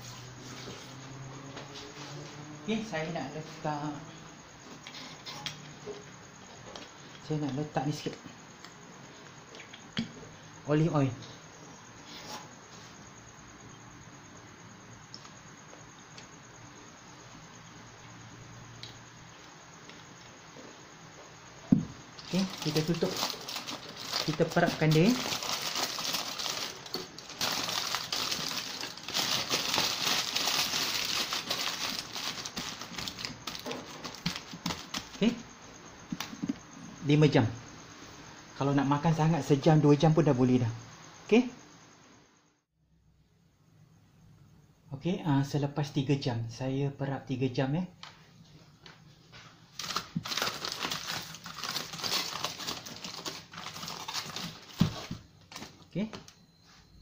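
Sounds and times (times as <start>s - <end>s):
aluminium foil crinkling: 22.2s - 35.2s, 49.8s - 55.8s.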